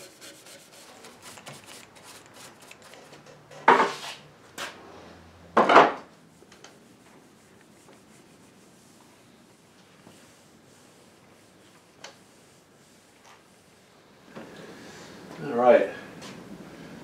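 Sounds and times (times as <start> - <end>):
brush scrubbing wood: 0.0 - 3.2, 6.3 - 13.8.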